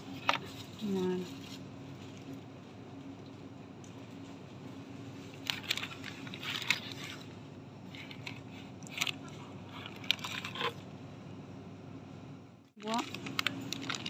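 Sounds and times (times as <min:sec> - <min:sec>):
steady low hum: 0:00.0 - 0:14.0
plastic packages crackling: 0:05.3 - 0:07.3, 0:12.8 - 0:14.0.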